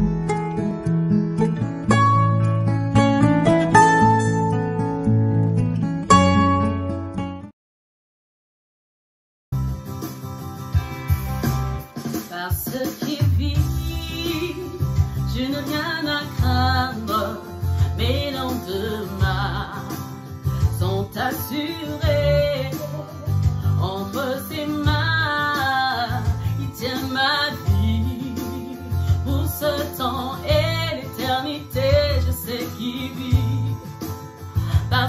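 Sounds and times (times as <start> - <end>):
worship music with guitar and bass: 0.0 - 7.5, 9.6 - 12.0, 13.2 - 35.0
person singing: 12.2 - 35.0.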